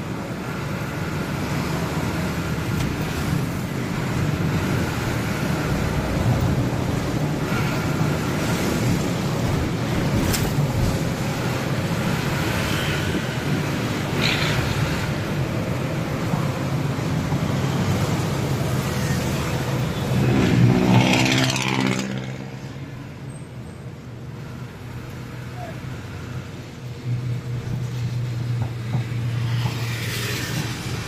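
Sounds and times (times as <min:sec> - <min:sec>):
truck engine rumble: 0:00.0 - 0:20.8
road noise: 0:00.0 - 0:31.0.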